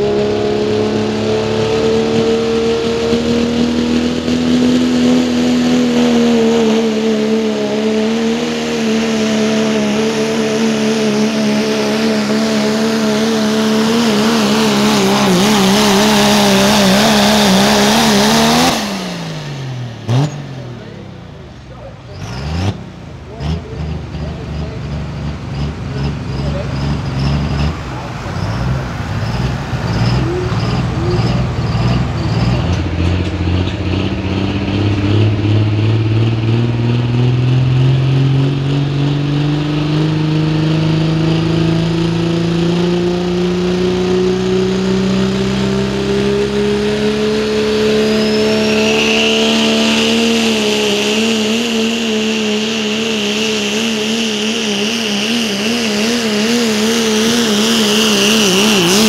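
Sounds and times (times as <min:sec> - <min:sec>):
diesel engine under load: 0:00.0 - 0:59.0
turbo whine: 0:46.0 - 0:59.0.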